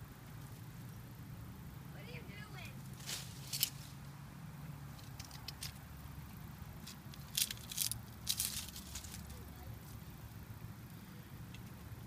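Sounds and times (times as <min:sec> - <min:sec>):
low background rumble: 0:00.0 - 0:12.0
rustling in dry leaves: 0:01.9 - 0:04.1, 0:04.9 - 0:10.3.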